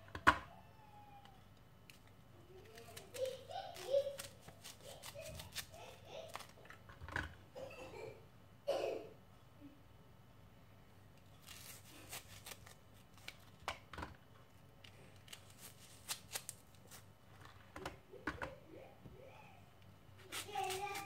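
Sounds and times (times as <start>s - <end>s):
knife cutting onions: 2.7s - 6.6s, 11.4s - 13.3s, 20.2s - 21.0s.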